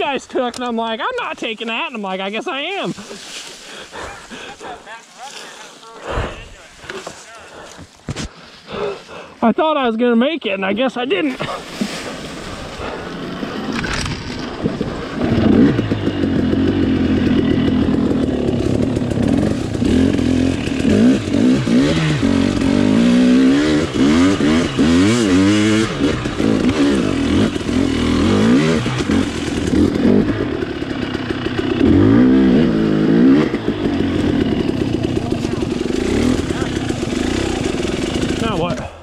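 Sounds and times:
dirt bike engine revving: 11.3s - 39.0s.

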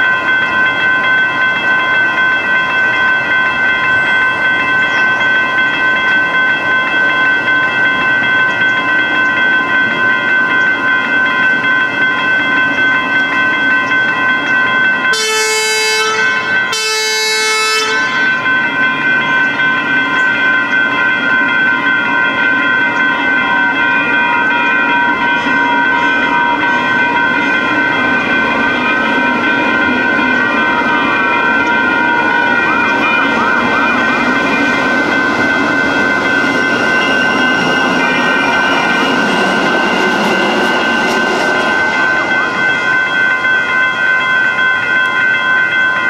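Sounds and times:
railroad crossing bells ringing: 0.0s - 46.0s
train horn blasts: 15.1s - 18.5s.

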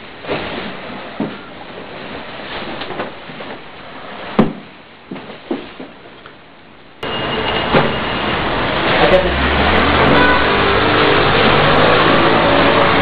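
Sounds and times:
dull thuds of scuffle: 4.2s - 6.0s.

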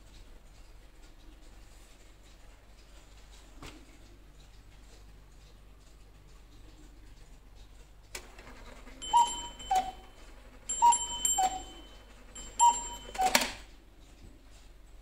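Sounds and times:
clock mechanism click: 0.1s - 13.8s
small bell ringing: 9.0s - 13.6s
two-note cuckoo calls: 9.0s - 13.6s.

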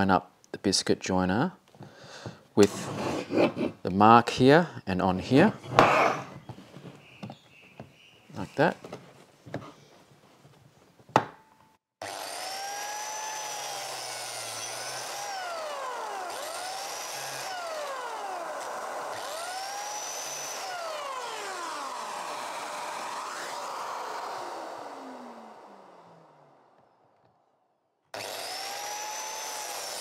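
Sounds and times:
biscuit jointer cutting board: 2.6s - 3.7s, 5.6s - 6.5s, 12.0s - 26.9s, 28.2s - 30.0s.

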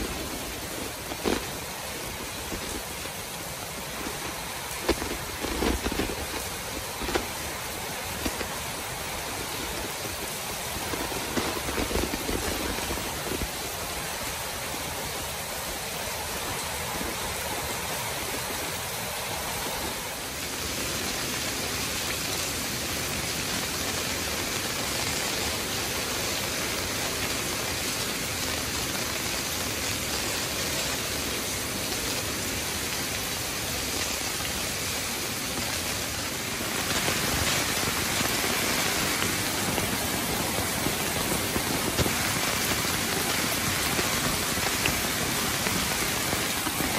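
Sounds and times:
heavy rain on wet paving: 0.0s - 46.9s.

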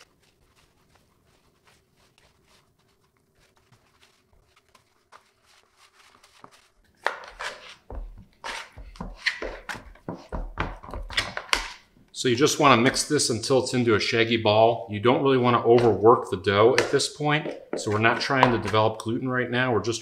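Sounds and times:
dough squelching by hand: 0.0s - 11.2s.

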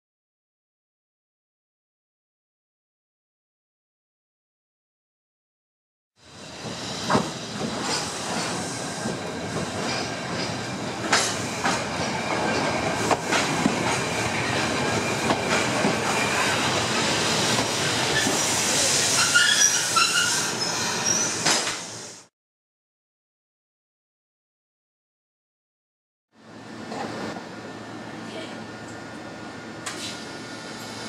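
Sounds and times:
tram wheel and rail noise: 6.2s - 22.3s, 26.4s - 31.0s
wheels squealing: 19.2s - 21.5s.

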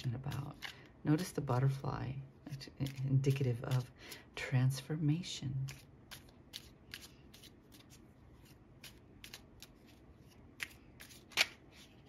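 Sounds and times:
cards being shuffled: 0.3s - 0.9s, 5.7s - 12.0s.

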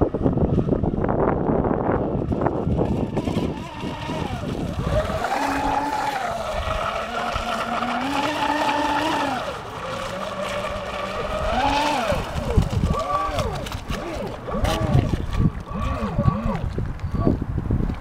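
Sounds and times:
electric motor whining: 2.1s - 16.7s.

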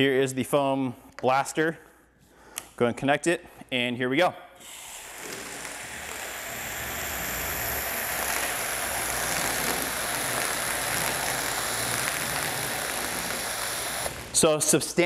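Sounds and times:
foam spray hissing and splattering: 5.2s - 14.3s.

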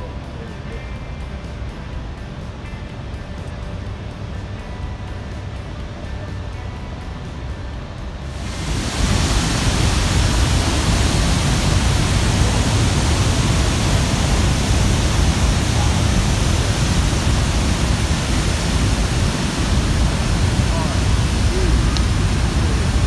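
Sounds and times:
waterfall rushing: 8.3s - 23.0s.

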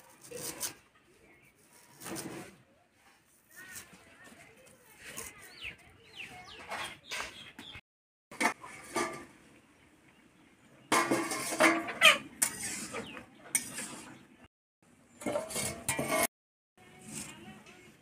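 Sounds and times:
metal spatula scraping a pan: 0.0s - 2.6s, 8.4s - 9.4s, 10.9s - 14.2s, 15.2s - 16.3s.

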